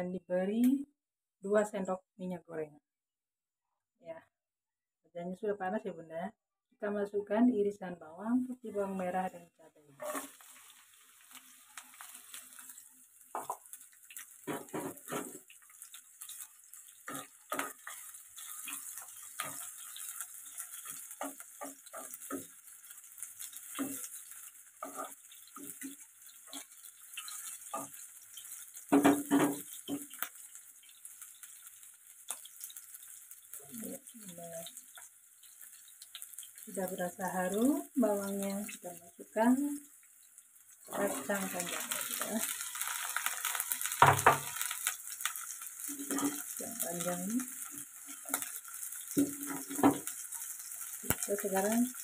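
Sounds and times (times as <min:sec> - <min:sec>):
food sizzling in hot oil: 0:08.4 - 0:52.0
utensil scraping wok: 0:10.0 - 0:36.7, 0:40.8 - 0:51.9.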